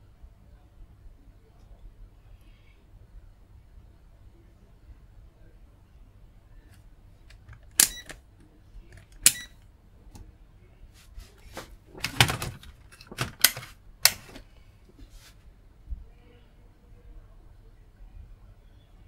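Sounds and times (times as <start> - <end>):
equipment clicking and knocking: 12.0 - 14.4.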